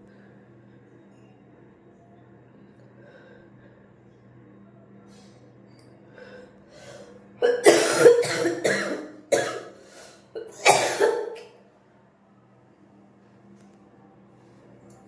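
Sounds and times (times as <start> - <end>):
faint breaths: 0.0 - 1.8, 2.4 - 7.3
woman coughing: 7.4 - 9.8, 10.4 - 11.5.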